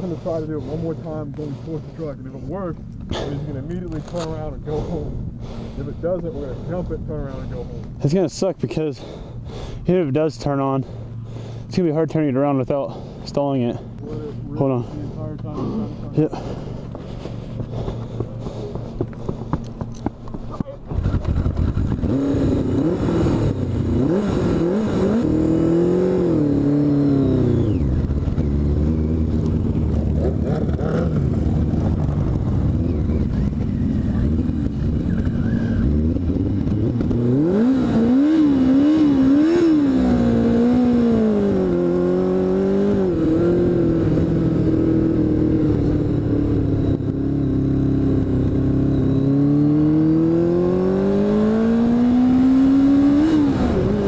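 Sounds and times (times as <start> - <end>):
motorcycle engine revving: 12.9 - 54.0.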